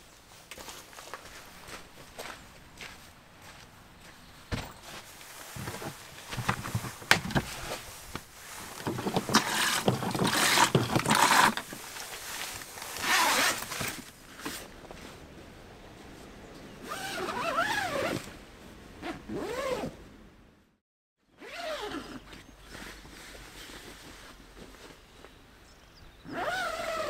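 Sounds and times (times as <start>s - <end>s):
fabric rustling: 4.8s - 15.2s
zipper pulls rasping: 8.6s - 11.8s, 12.9s - 14.5s, 16.8s - 18.3s, 19.0s - 20.0s, 21.4s - 22.5s, 26.3s - 27.0s.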